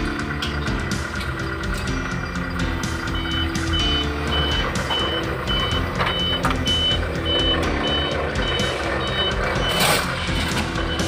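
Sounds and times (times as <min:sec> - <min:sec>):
low engine rumble: 0:00.0 - 0:11.0
high-pitched electronic beeps: 0:03.1 - 0:10.1, 0:10.7 - 0:11.0.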